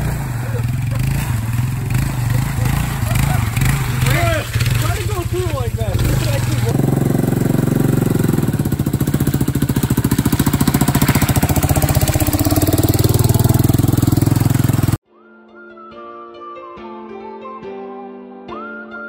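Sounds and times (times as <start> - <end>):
quad engine running: 0.0 - 15.0
soft music: 15.0 - 19.0.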